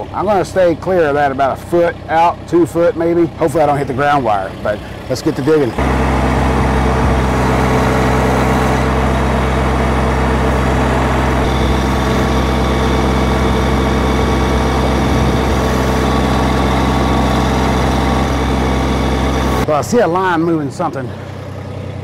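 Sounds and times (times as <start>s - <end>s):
tractor engine running steadily: 0.0s - 22.0s
backhoe digging into soil: 5.8s - 19.6s.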